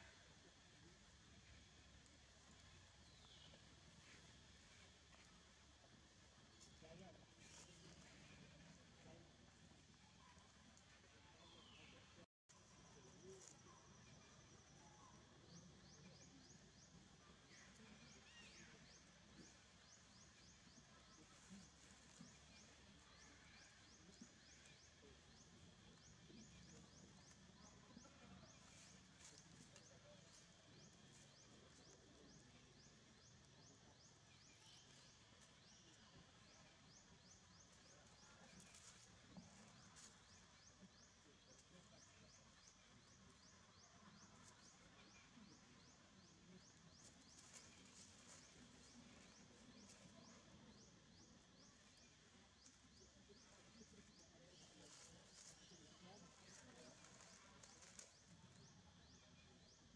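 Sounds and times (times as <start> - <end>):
dry leaves crackling: 47.0 - 50.0, 54.9 - 55.7, 56.4 - 58.4.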